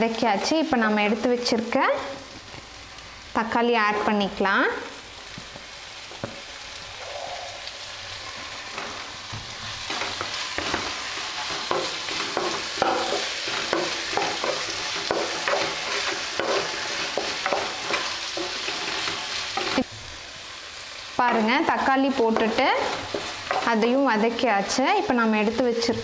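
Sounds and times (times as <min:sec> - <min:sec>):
vegetables sizzling in hot oil: 0:00.0 - 0:26.0
spatula scraping a pan: 0:08.2 - 0:19.9.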